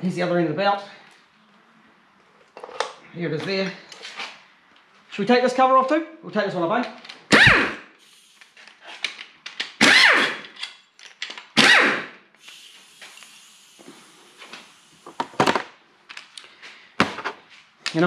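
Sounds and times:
pneumatic impact wrench bursts: 7.3s - 9.0s, 9.8s - 10.6s, 11.6s - 15.2s
faint hiss of air: 8.0s - 9.0s, 12.4s - 15.3s.

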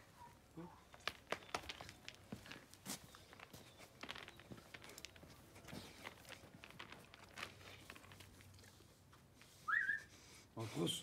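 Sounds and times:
footsteps on gravelly dirt: 0.9s - 8.4s.

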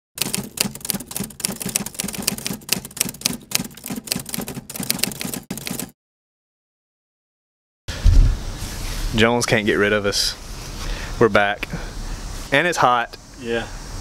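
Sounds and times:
typewriter key clacks: 0.2s - 5.9s.

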